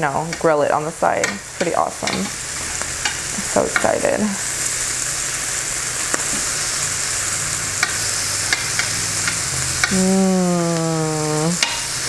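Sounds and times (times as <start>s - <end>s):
meat sizzling on a grill: 0.0s - 12.0s
metal tongs clicking on grill: 1.2s - 2.3s, 3.0s - 4.0s, 7.8s - 10.0s, 11.6s - 11.9s.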